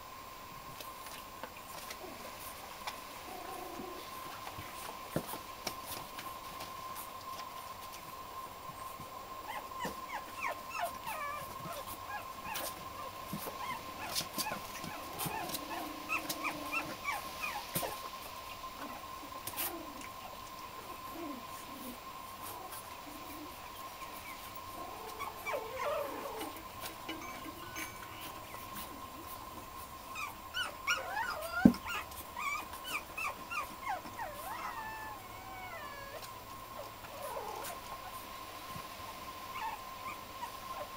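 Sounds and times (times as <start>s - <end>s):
puppies whimpering and yipping: 9.4s - 18.1s, 20.8s - 38.2s, 39.5s - 40.9s
steady high tone: 27.1s - 28.7s.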